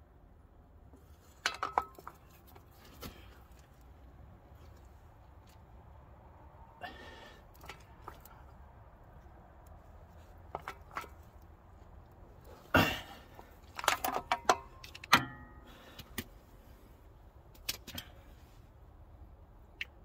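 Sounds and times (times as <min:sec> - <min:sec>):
metal parts clicking and rattling: 0:13.4 - 0:15.4.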